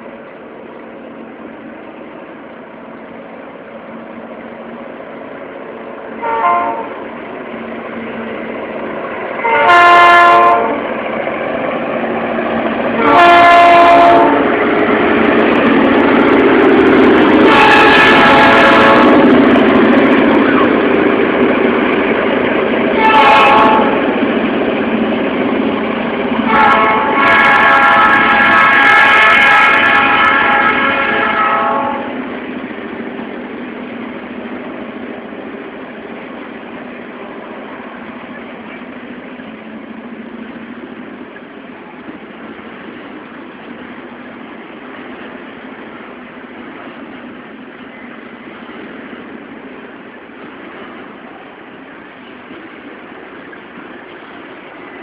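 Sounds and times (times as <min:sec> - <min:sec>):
locomotive engine rumble: 0:00.0 - 0:55.0
locomotive air horn blasts: 0:06.2 - 0:07.0, 0:09.4 - 0:10.8, 0:13.0 - 0:14.5, 0:17.4 - 0:19.2, 0:23.0 - 0:24.0, 0:26.5 - 0:32.1.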